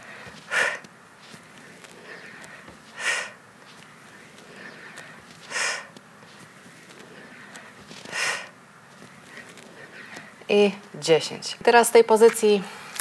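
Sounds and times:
sharp forceful exhalations: 0.0 - 6.0, 6.8 - 8.6.

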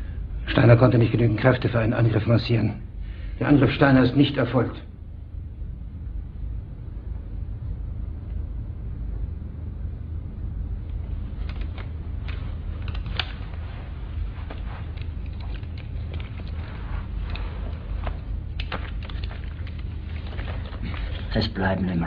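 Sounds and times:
low room rumble: 0.0 - 22.0
faint clicks and rustles: 10.4 - 21.6.

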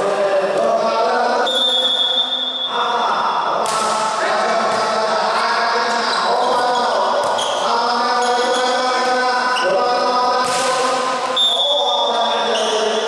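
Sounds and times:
volleyball hits: 3.6 - 5.1, 10.4 - 11.6.

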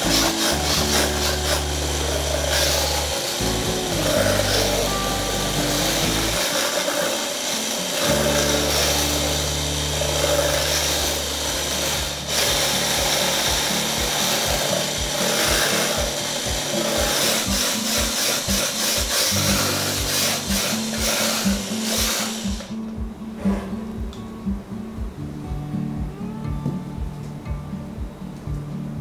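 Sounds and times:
electric hand blender whirring: 0.0 - 22.8
background music with bass: 0.0 - 29.0.

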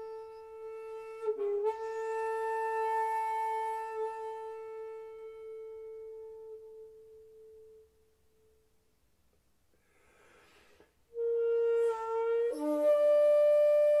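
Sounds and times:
bamboo flute long note: 0.0 - 8.6, 11.1 - 14.0
soft rush of breath: 9.7 - 11.1.

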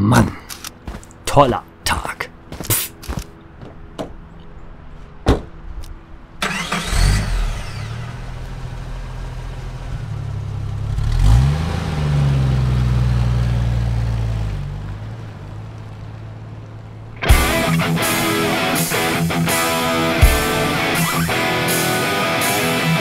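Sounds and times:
car door shutting: 5.2 - 5.6
car engine starting and revving: 6.4 - 23.0.

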